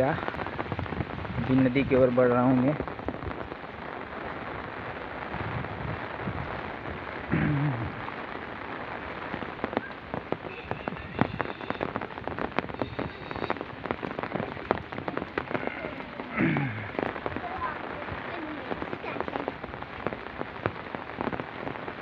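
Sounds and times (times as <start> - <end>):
rain falling: 0.0 - 22.0
raindrop taps on microphone: 9.7 - 21.4.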